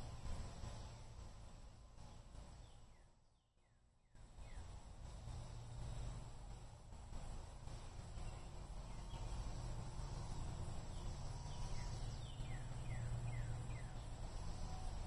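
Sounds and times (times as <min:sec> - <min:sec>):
low steady rumble: 0:00.0 - 0:15.0
bird chirping: 0:02.0 - 0:04.8, 0:07.7 - 0:15.0.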